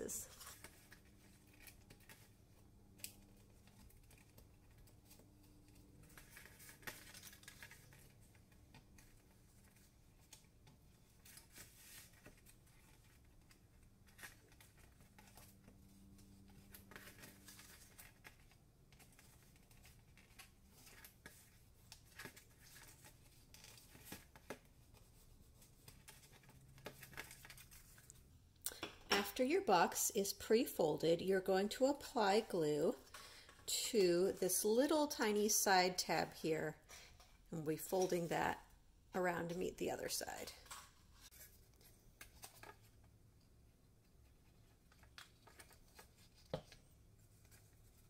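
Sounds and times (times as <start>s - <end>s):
cardstock rustling and creasing: 0.3s - 28.3s, 40.5s - 43.1s, 44.1s - 48.0s.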